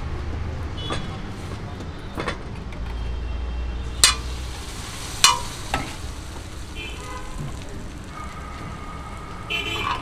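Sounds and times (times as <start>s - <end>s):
buns sizzling on a griddle: 3.8s - 10.0s.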